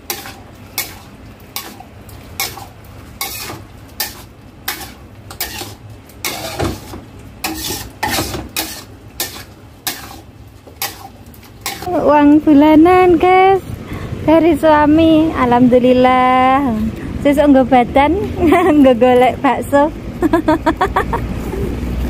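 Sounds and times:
metal spatula scraping wok: 0.0 - 11.9.

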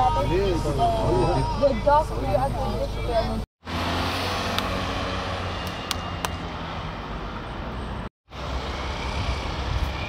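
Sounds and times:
steady outdoor noise: 0.0 - 10.0
street noise: 0.0 - 10.0
vehicle engine passing: 3.6 - 9.4.

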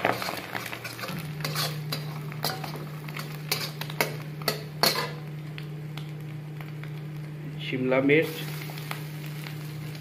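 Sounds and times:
metal spatula scraping pan: 0.0 - 2.8, 3.5 - 5.2
food frying in oil: 0.0 - 10.0
steady low hum: 0.0 - 10.0.

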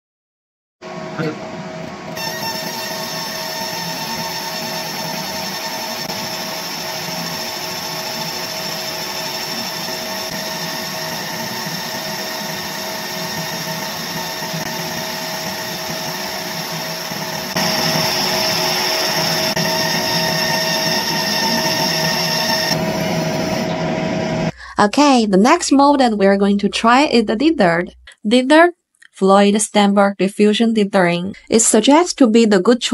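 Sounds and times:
laser engraver whine: 2.1 - 24.5.

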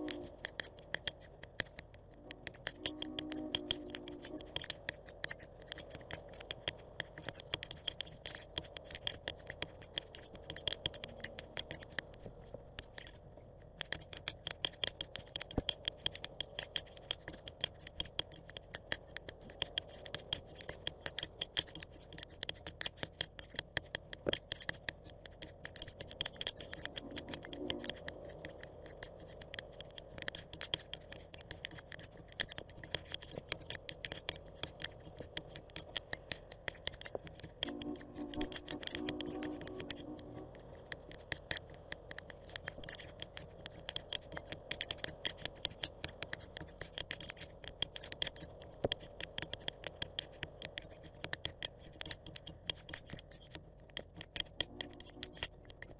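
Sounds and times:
raindrops ticking on camera: 0.0 - 55.9
steady background hiss: 26.4 - 51.9.

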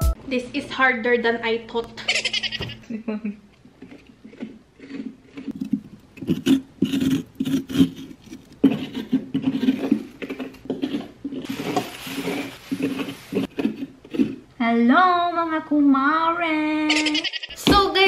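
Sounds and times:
spoon scraping pumpkin: 3.8 - 14.5.

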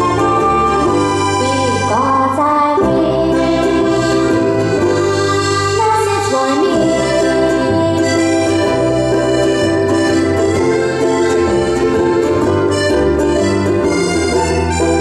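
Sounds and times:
woman singing: 0.0 - 4.6, 5.3 - 8.7
accordion: 0.0 - 15.0
strummed ukuleles: 0.0 - 15.0
ukulele bass: 0.0 - 15.0.

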